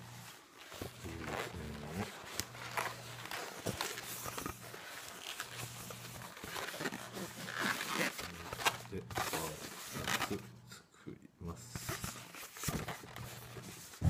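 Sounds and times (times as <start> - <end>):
balloons squeaking and rubbing: 0.0 - 10.6, 11.8 - 14.0.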